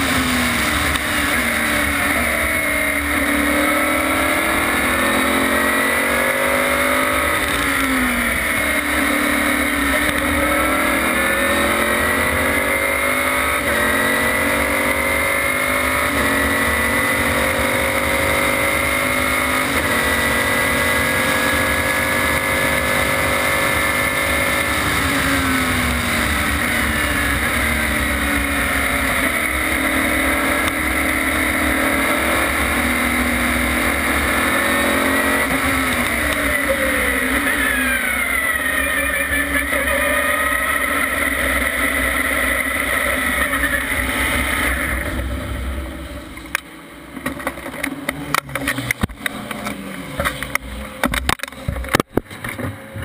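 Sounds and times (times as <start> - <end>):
racing car engine: 0.0 - 53.0
sharp clicks and knocks: 46.3 - 53.0.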